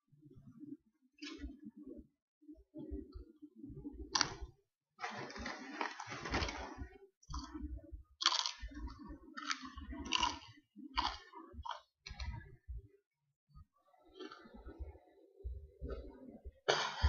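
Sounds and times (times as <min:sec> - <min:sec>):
chewing crunchy chips: 0:08.2 - 0:12.3.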